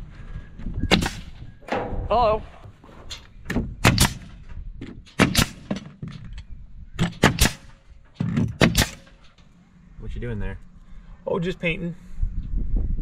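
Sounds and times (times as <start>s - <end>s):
nail gun firing into wood: 0.9s - 2.0s, 3.5s - 4.4s, 5.0s - 6.2s, 7.0s - 9.2s.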